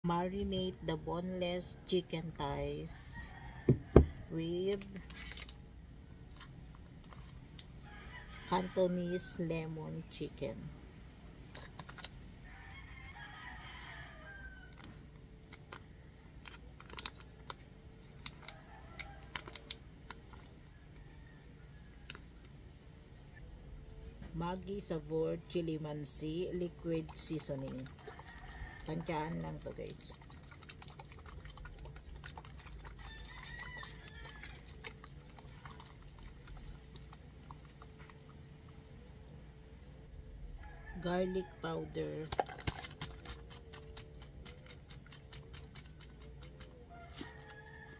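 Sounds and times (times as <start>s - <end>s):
low steady hum: 0.0s - 47.9s
rooster crowing: 3.2s - 4.4s, 7.8s - 9.4s, 12.4s - 15.0s, 18.4s - 19.6s, 20.7s - 22.2s, 28.0s - 29.3s, 33.0s - 34.8s, 40.5s - 42.1s, 46.3s - 47.9s
plastic sachet crinkling: 16.4s - 17.6s.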